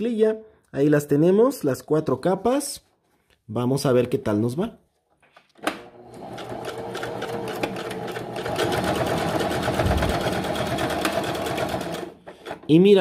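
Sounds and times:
sewing machine stitching: 5.9s - 12.7s.

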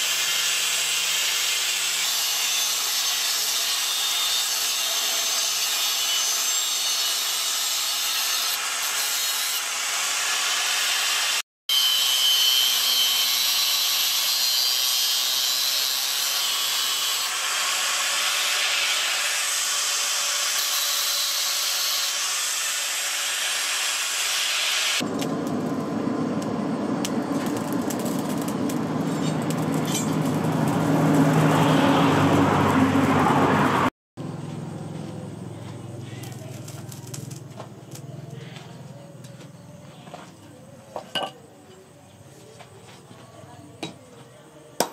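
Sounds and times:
angle grinder cutting steel: 0.0s - 25.1s, 27.0s - 33.3s.

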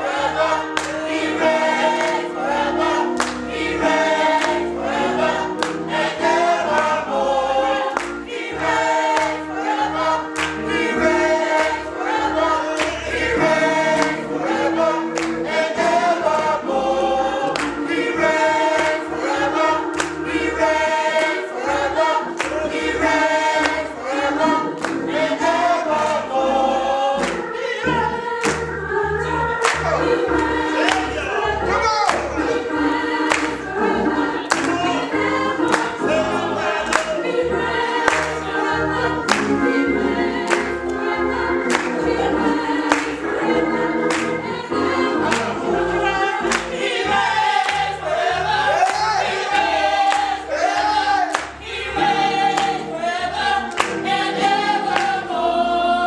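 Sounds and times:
choir singing: 0.0s - 56.0s
hand claps: 0.7s - 1.1s, 1.9s - 2.3s, 3.1s - 3.5s, 4.2s - 4.7s, 5.6s - 5.9s, 7.9s - 8.3s, 9.0s - 9.4s, 10.3s - 10.8s, 12.7s - 13.1s, 13.9s - 14.2s, 15.1s - 15.5s, 17.5s - 18.0s, 18.7s - 19.1s, 19.9s - 20.4s, 22.4s - 24.0s, 24.8s - 25.2s, 27.2s - 27.4s, 28.4s - 28.7s, 29.6s - 31.2s, 32.0s - 32.5s, 33.2s - 33.6s, 34.4s - 34.9s, 35.6s - 36.0s, 36.8s - 37.2s, 38.0s - 38.5s, 39.3s - 39.6s, 40.4s - 41.0s, 41.7s - 42.1s, 42.8s - 43.2s, 44.0s - 44.4s, 45.3s - 45.6s, 46.4s - 46.8s, 47.6s - 47.9s, 48.8s - 50.4s, 51.3s - 51.6s, 52.5s - 52.8s, 53.7s - 54.1s, 54.9s - 55.2s.

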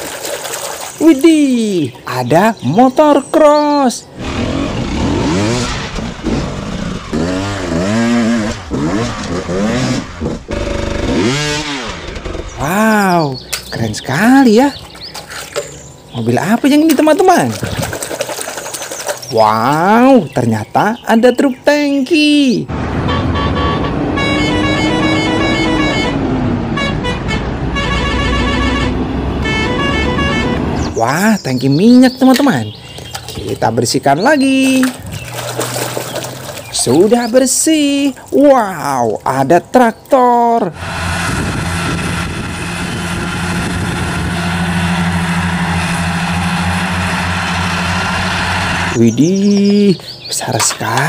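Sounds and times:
truck engine rumble: 4.0s - 21.1s, 22.6s - 51.0s
mowers mechanical noise: 4.1s - 20.4s, 30.8s - 51.0s
multi-tone horn bursts: 23.0s - 30.8s
tractor diesel engine humming: 40.7s - 51.0s.

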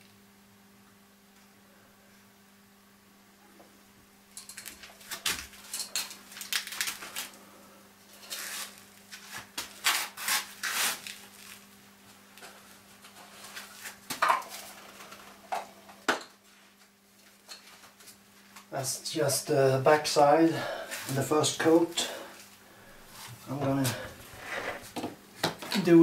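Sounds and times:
low steady hum: 0.0s - 26.0s
hard objects rubbing and scraping: 23.0s - 25.0s.

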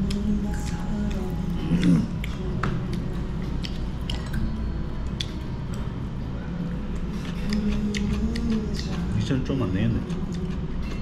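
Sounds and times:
person chewing fried shrimp: 0.0s - 4.4s, 6.9s - 9.2s
steady low hum: 0.0s - 11.0s.

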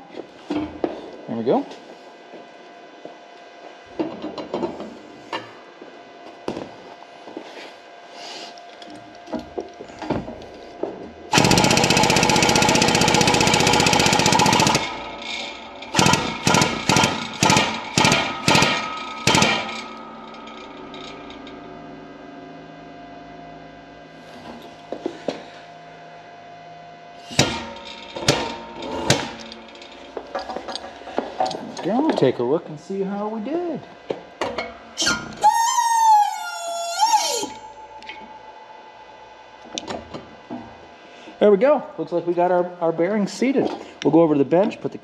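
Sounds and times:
shop press mechanical chatter: 11.3s - 21.2s, 27.2s - 32.3s
sharp metallic clanks: 11.3s - 21.6s, 27.2s - 32.3s.

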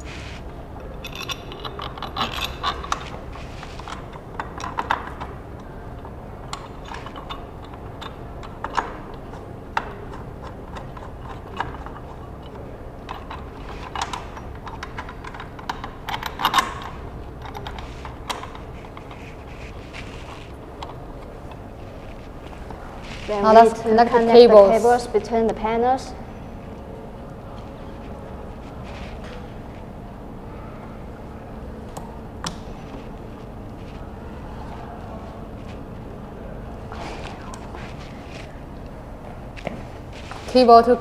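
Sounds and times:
small metal parts clicking: 0.8s - 19.3s.

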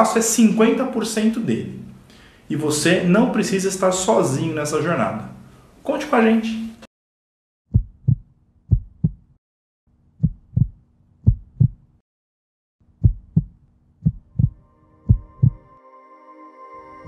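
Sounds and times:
heartbeat thumps: 7.7s - 9.4s, 10.2s - 11.9s, 13.0s - 15.7s
sustained synth chord: 14.5s - 17.0s.

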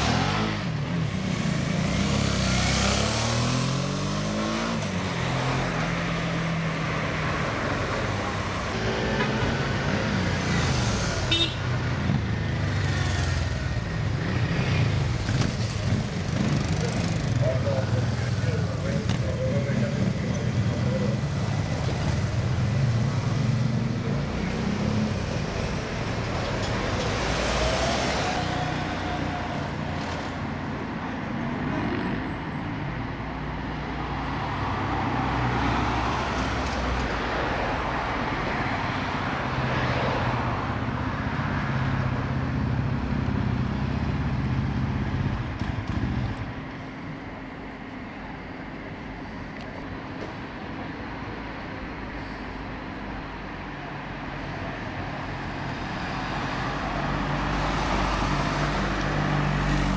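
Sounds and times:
motorcycle and car engines passing: 0.0s - 32.6s, 34.5s - 47.2s.

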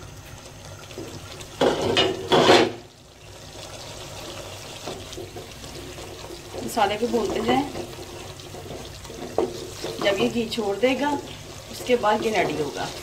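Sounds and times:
sauce bubbling in a pan: 0.0s - 13.0s
wooden spoon stirring and scraping: 3.8s - 13.0s.

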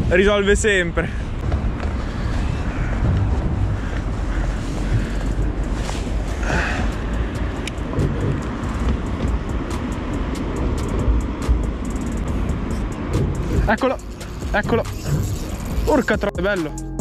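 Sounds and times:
wind rumbling on microphone: 0.0s - 16.2s
fishing reel ticking: 7.3s - 16.0s.

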